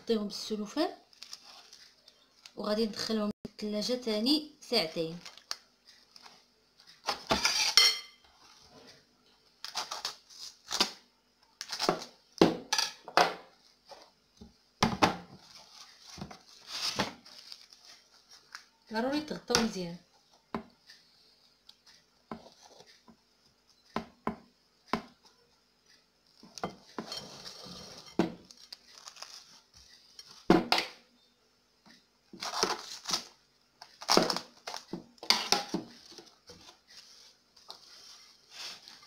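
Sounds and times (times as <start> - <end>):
cling film crinkling: 1.0 - 2.6, 5.1 - 7.0, 15.4 - 18.8, 28.4 - 30.4.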